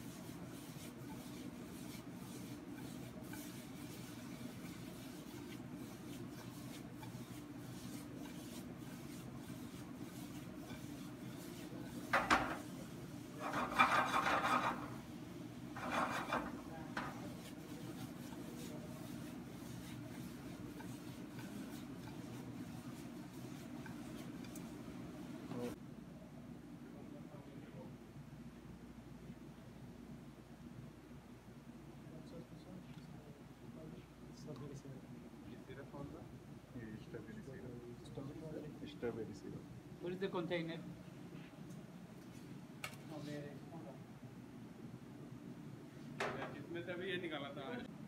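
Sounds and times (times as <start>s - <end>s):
low kitchen hum: 0.0s - 48.0s
pan scraping on grate: 10.3s - 12.7s, 13.3s - 15.0s, 15.8s - 24.6s.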